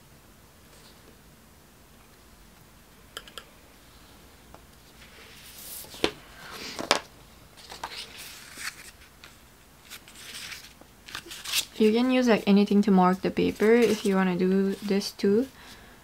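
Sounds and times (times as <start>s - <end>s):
paper rustling and scraping: 4.9s - 6.9s, 7.6s - 12.5s, 13.1s - 15.1s.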